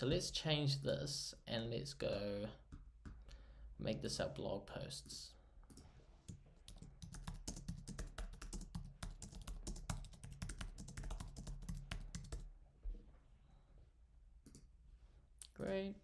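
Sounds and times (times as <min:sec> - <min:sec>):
typing on computer keyboard: 0:05.7 - 0:12.5.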